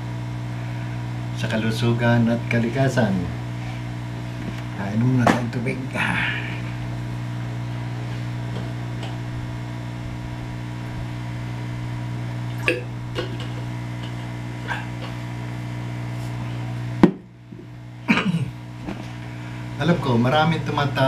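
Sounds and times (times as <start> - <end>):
low electrical hum: 0.0 - 21.0
man swallowing water: 6.1 - 16.8.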